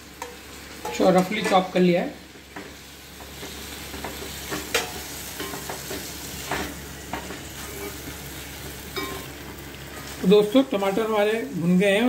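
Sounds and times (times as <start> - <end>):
tomatoes sizzling in a pan: 0.0 - 12.0
spatula scraping a pan: 3.3 - 8.2.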